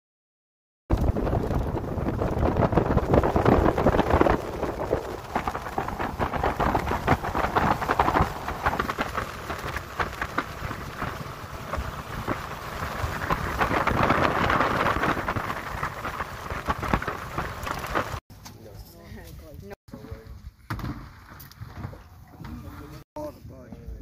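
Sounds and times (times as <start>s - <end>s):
water rushing along hull: 0.9s - 18.2s
waves slapping hull: 0.9s - 18.2s
wind buffeting microphone: 0.9s - 18.2s.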